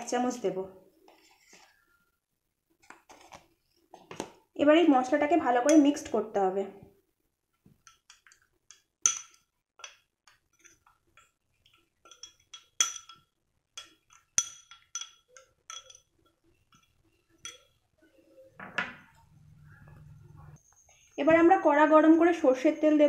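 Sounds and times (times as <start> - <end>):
spoon clinking in ceramic bowl: 7.9 - 11.3, 12.0 - 16.1, 16.7 - 17.8.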